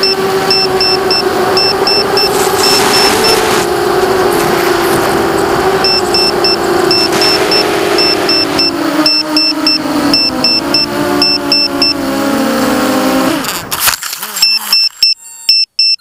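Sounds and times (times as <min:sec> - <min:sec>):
low-battery alarm beeping: 0:00.0 - 0:03.9, 0:05.7 - 0:12.3, 0:14.4 - 0:16.0
quadcopter motors whining: 0:00.0 - 0:15.8.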